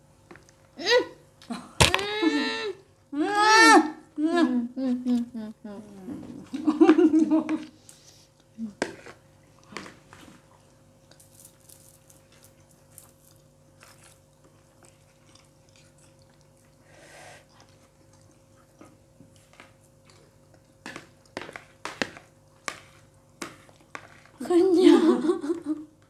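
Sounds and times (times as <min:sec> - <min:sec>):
faint steady hum: 0:00.0 - 0:26.0
chewing and mouth sounds: 0:09.4 - 0:21.8.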